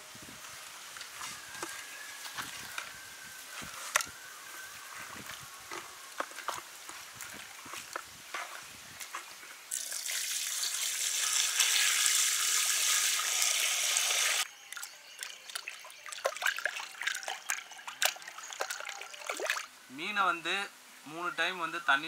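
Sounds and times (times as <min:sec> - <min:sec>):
water pouring into metal pot: 0:09.7 - 0:19.6
small water splashes: 0:14.7 - 0:19.7.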